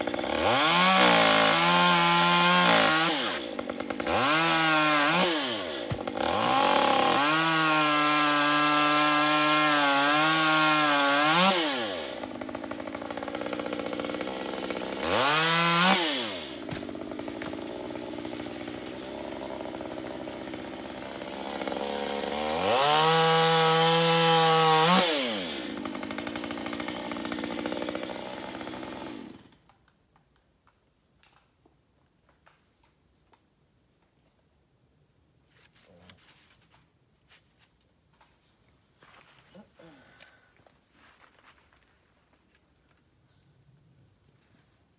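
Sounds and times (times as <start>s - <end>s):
chainsaw revving and idling: 0.0s - 29.6s.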